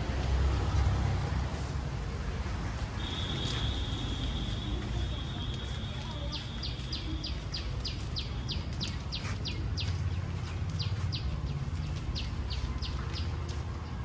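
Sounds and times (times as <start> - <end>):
bird chirping: 6.1 - 13.5.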